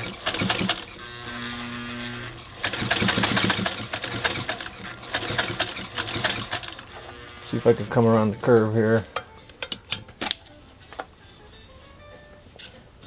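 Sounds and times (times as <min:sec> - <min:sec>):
sewing machine motor hum: 0:00.0 - 0:07.9.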